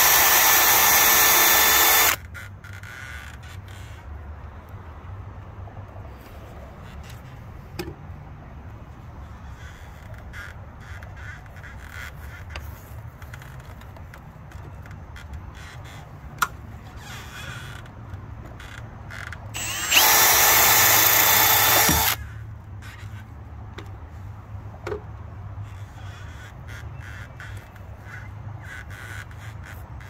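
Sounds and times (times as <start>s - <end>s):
power drill drilling into screw: 0.0s - 2.2s, 19.6s - 22.2s.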